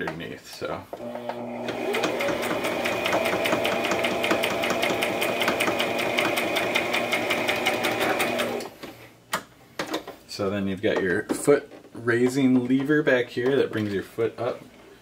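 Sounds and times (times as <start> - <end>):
electric sewing machine sewing: 1.0 - 8.7.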